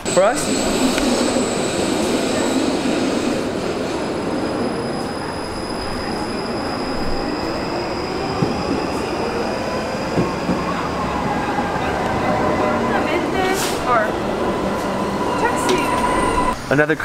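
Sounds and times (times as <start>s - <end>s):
high wheel squeal: 0.0s - 17.0s
light-rail train rumble: 0.0s - 17.0s.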